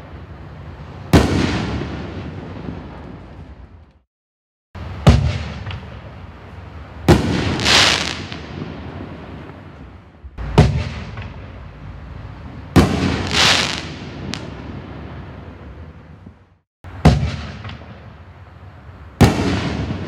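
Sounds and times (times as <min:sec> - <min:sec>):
firework booms: 0:01.1 - 0:03.6, 0:04.8 - 0:06.1, 0:07.0 - 0:11.6, 0:12.7 - 0:15.6, 0:16.2 - 0:18.2, 0:19.2 - 0:20.0
firework hissing and crackling: 0:04.8 - 0:11.6, 0:12.6 - 0:15.4.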